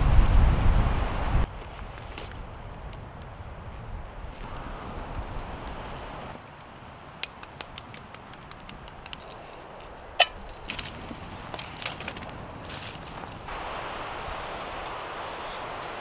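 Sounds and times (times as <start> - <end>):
wind rumble on microphone: 0.0 - 6.8
campfire crackling and popping: 1.0 - 14.1.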